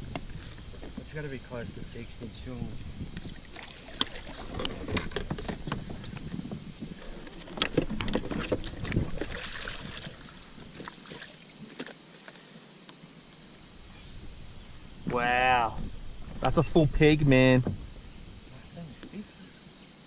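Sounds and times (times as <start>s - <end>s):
fish splashing at water surface: 8.6s - 11.9s.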